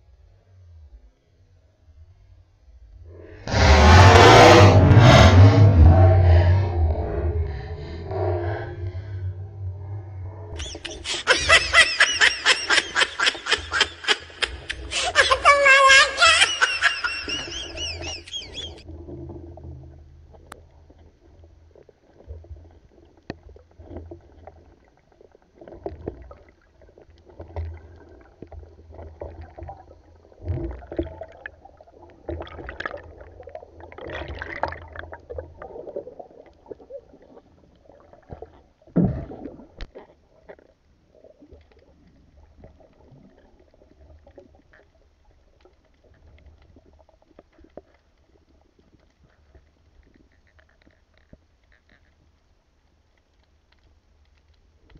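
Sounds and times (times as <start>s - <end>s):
underwater rumbles: 2.0s - 15.1s, 16.7s - 54.9s
bubbling underwater: 29.1s - 40.4s.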